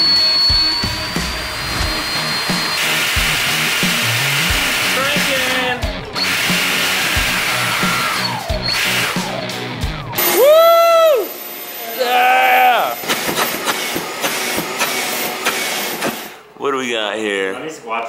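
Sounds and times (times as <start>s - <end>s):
background music with a beat: 0.0s - 10.8s
drone motor whine: 0.0s - 11.8s.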